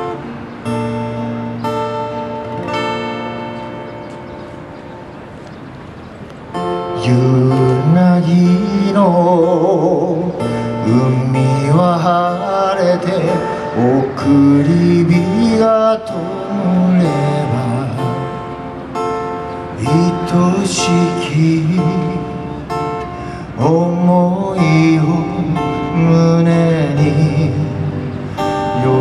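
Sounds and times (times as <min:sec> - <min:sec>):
acoustic guitar strumming: 0:00.0 - 0:29.0
man singing with vibrato: 0:06.8 - 0:18.8, 0:19.5 - 0:29.0.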